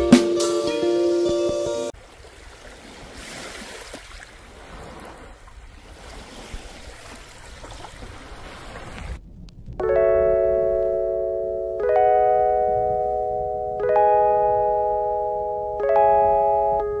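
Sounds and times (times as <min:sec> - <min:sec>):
small sea waves on sand: 0:02.0 - 0:09.2
low rumble: 0:09.2 - 0:10.7.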